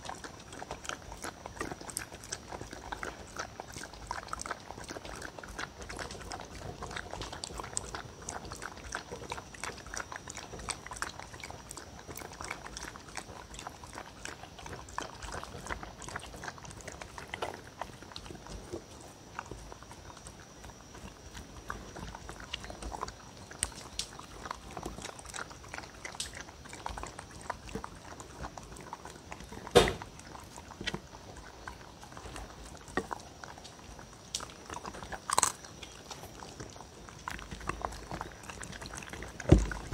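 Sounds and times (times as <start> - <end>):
dog lapping and eating: 0.0 - 39.9
sharp knock: 29.8 - 30.0.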